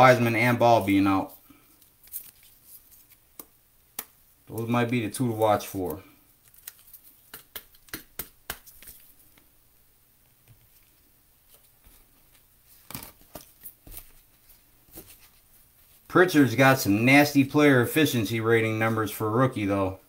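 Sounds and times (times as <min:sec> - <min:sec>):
trading cards flicking and clicking: 0:05.7 - 0:09.1.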